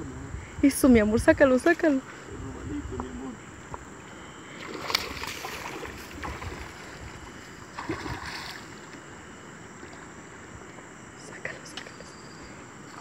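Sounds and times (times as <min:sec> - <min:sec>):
fish splashing at water surface: 0:04.6 - 0:07.0, 0:07.7 - 0:08.8.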